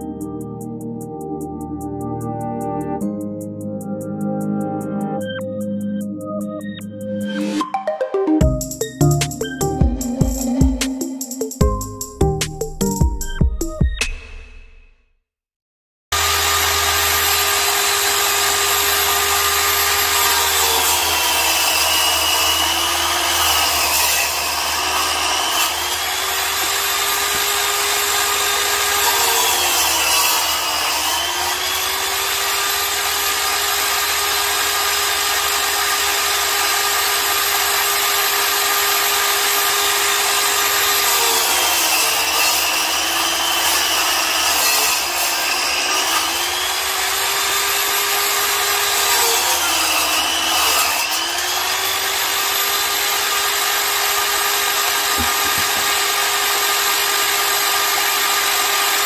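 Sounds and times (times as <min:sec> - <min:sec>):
angle grinder cutting masonry: 0:16.2 - 0:59.0.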